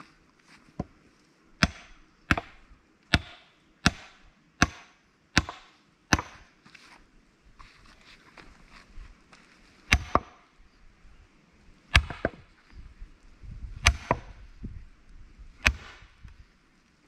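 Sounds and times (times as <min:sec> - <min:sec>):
hammer striking steel wedge: 0:01.6 - 0:06.5, 0:09.9 - 0:10.4, 0:12.0 - 0:12.4, 0:13.8 - 0:14.4, 0:15.6 - 0:16.0.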